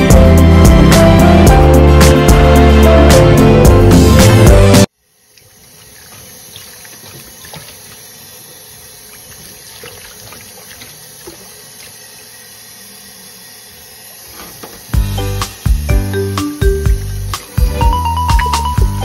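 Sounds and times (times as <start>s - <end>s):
water running in a sink: 4.8s - 19.0s.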